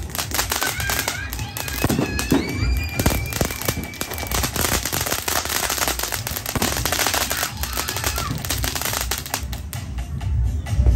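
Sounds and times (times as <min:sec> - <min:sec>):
firework fountain hissing and crackling: 0:00.0 - 0:09.9.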